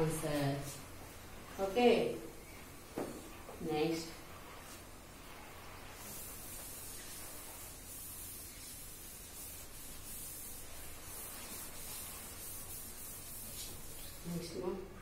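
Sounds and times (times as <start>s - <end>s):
duster rubbing on blackboard: 3.3s - 14.7s.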